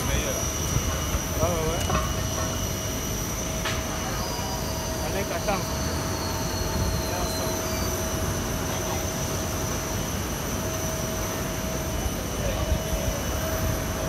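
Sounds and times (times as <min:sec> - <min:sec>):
low machinery rumble: 0:00.0 - 0:14.0
machinery whine: 0:00.0 - 0:14.0.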